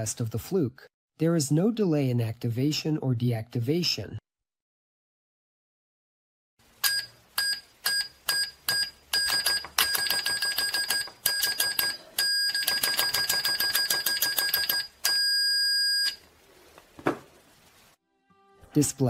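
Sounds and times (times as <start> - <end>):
multimeter beeping: 6.8 - 16.2.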